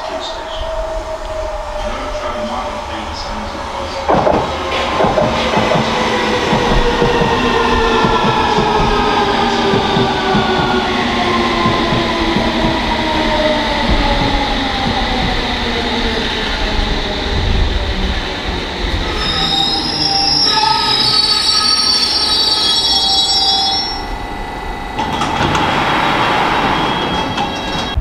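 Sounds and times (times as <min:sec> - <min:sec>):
train brakes squealing: 0:19.0 - 0:28.0
train motor whine falling: 0:21.8 - 0:28.0.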